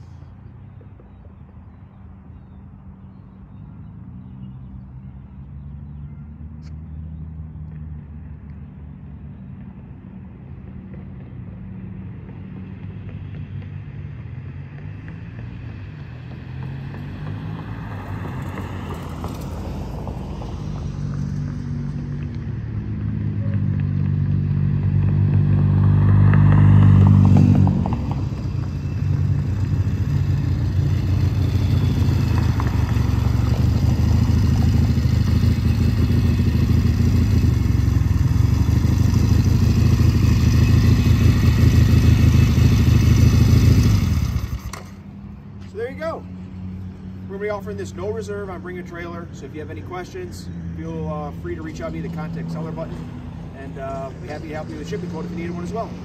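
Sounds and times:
motorcycle engine running: 27.0 - 45.1.

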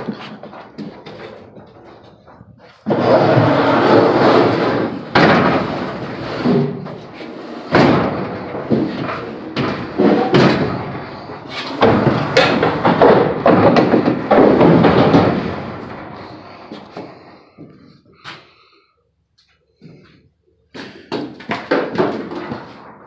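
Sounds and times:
bangs on metal trailer: 4.4 - 16.8.

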